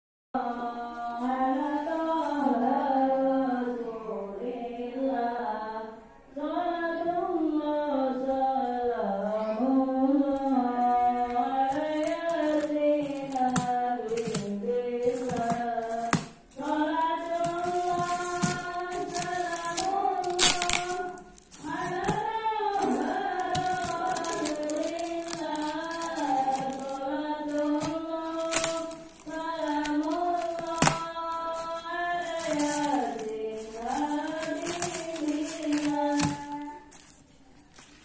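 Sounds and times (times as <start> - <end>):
person singing slowly: 7.8 - 37.0
sharp crackles: 17.3 - 22.2, 23.4 - 37.2.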